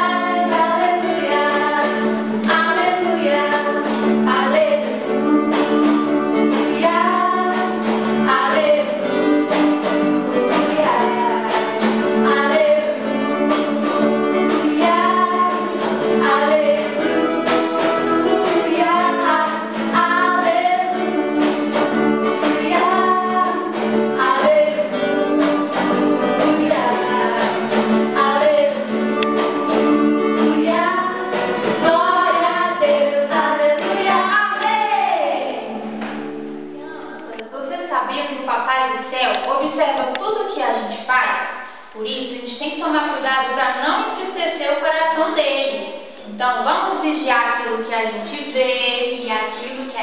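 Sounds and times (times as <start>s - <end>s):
women singing worship song: 0.0s - 36.2s
instrumental backing with beat: 4.9s - 32.8s.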